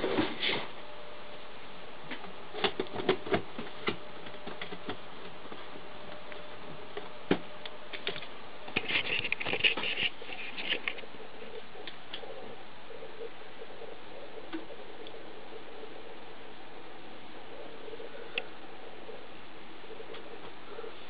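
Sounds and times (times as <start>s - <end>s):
steady hiss: 0.0s - 21.0s.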